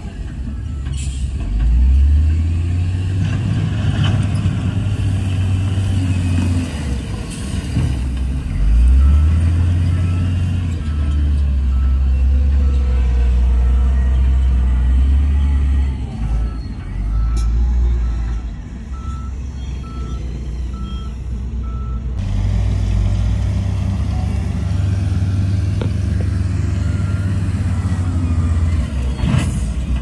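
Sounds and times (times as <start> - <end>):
heavy diesel engines droning: 0.0 - 30.0
reversing alarm beeping: 8.7 - 22.1, 26.6 - 29.2.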